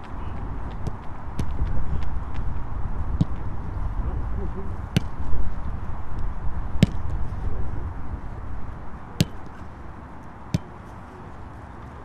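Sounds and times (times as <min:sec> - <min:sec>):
low outdoor rumble: 0:00.0 - 0:12.0
football kick thuds: 0:00.2 - 0:03.8, 0:04.9 - 0:07.4, 0:09.2 - 0:09.6.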